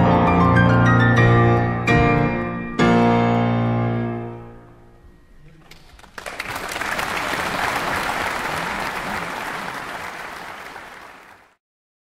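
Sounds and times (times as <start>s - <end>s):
piano chord: 0.0s - 5.1s
audience applauding: 5.6s - 11.6s.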